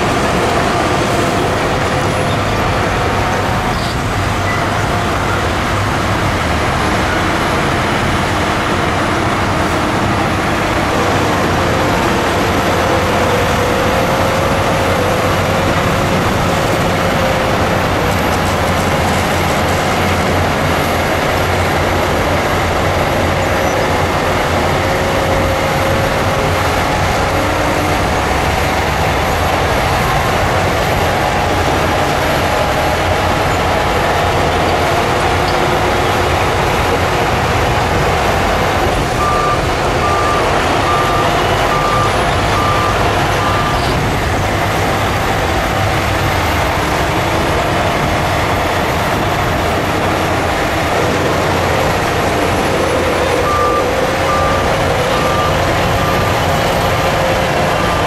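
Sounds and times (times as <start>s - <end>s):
bulldozer diesel engine: 0.0s - 58.0s
reversing alarm beeps: 39.2s - 44.0s, 53.3s - 56.9s.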